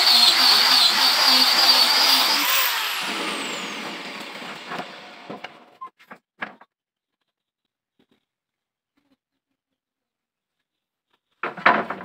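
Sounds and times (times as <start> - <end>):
angle grinder spinning down: 0.0 - 5.7.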